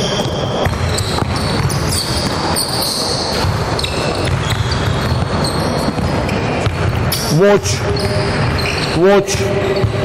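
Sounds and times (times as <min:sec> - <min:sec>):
sneakers squeaking: 0:00.0 - 0:10.0
basketball bouncing on wooden floor: 0:00.2 - 0:07.1.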